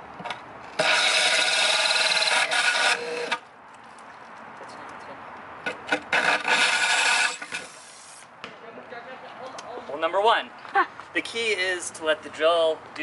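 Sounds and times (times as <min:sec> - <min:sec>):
drill grinding through glass: 0:00.8 - 0:03.4, 0:06.1 - 0:08.2.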